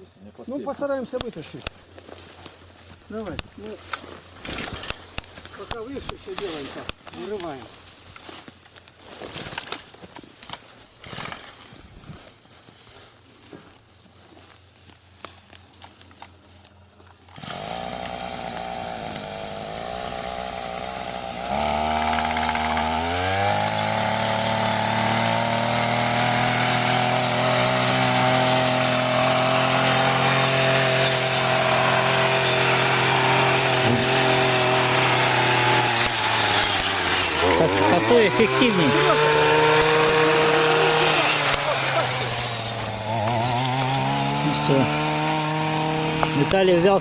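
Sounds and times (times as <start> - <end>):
brushcutter engine running: 3.1 - 7.8, 17.1 - 47.0.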